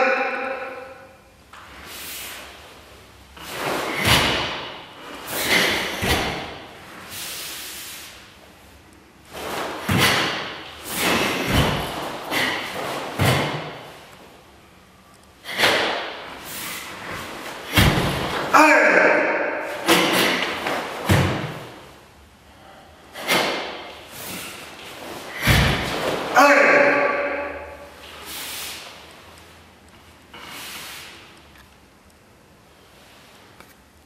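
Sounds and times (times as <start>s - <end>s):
uniform swishing: 1.7s - 14.1s.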